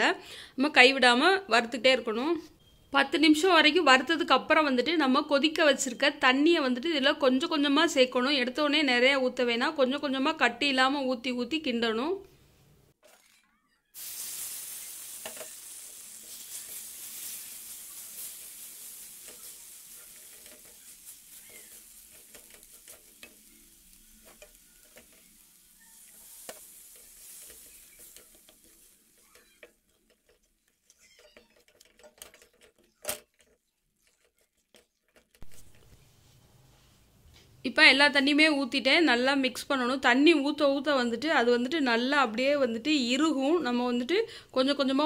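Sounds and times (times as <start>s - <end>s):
water sizzling in hot fat: 14.0s - 32.4s
wooden spatula scraping a pan: 14.2s - 37.1s.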